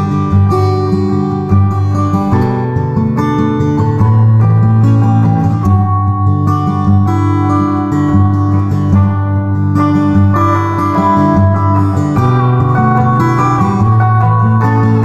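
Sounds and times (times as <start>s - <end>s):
acoustic guitar playing chords: 0.0s - 15.0s.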